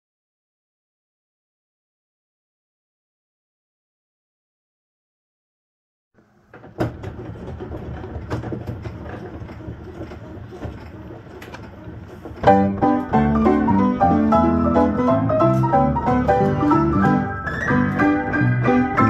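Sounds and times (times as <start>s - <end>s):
player piano mechanical rumble: 6.2s - 19.0s
lively piano music: 12.4s - 19.0s.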